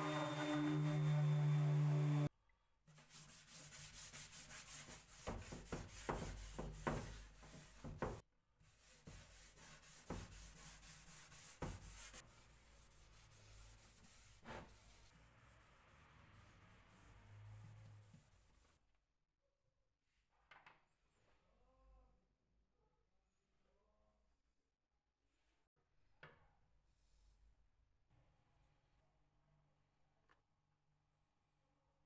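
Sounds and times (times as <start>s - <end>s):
cloth wiping wood: 0.0s - 2.3s, 3.0s - 8.2s, 8.8s - 18.6s.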